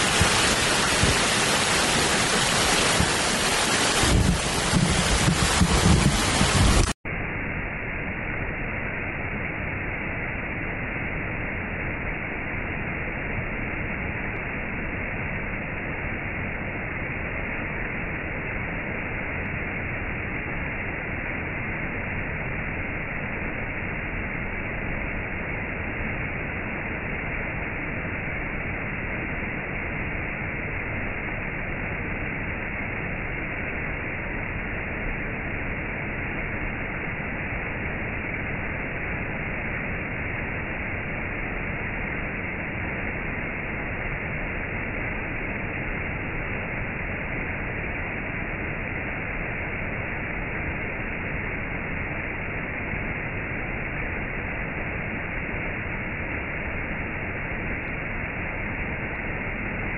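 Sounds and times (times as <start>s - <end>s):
waterfall rushing: 0.0s - 7.0s.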